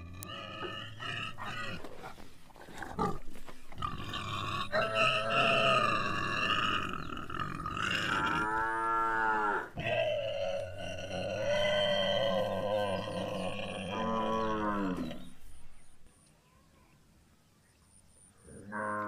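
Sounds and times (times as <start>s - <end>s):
cattle mooing: 3.8s - 15.3s.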